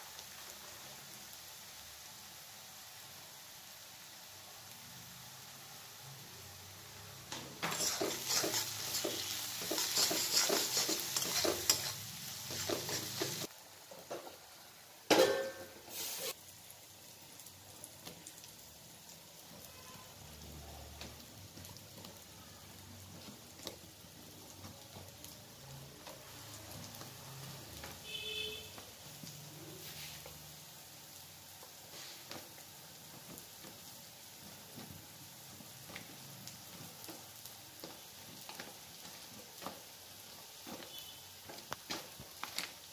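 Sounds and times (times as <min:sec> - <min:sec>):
onions sizzling in oil: 0:00.0 - 0:42.9
spatula scraping metal pan: 0:07.6 - 0:13.5.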